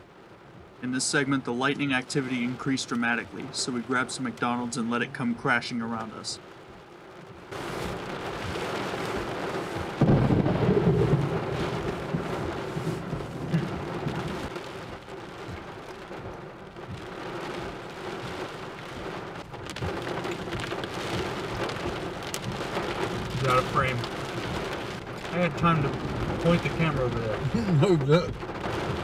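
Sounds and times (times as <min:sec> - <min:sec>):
heavy rain pelting a car: 0:00.0 - 0:29.0
thunder clap rumbling: 0:07.6 - 0:29.0.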